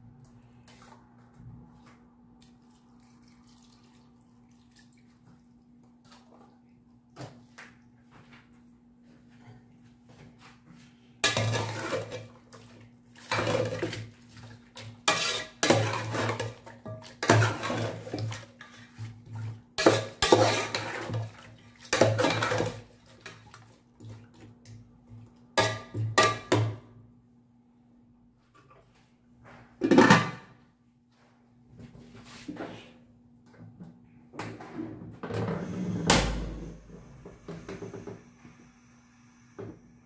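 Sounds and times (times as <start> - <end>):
metal spoon scraping a pot: 15.1 - 16.6, 17.2 - 18.9, 19.8 - 21.2.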